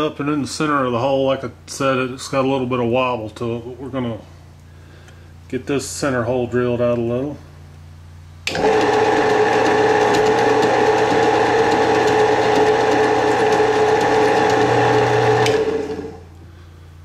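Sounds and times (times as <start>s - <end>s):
drill press motor hum: 8.4s - 16.4s
drill press cutting metal: 8.5s - 16.2s.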